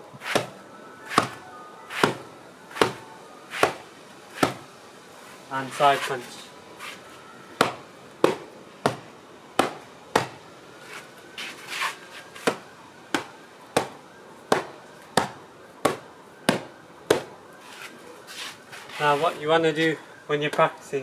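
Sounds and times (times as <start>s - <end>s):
fists punching sandbag: 2.8s - 3.0s, 3.6s - 3.8s, 4.4s - 4.6s.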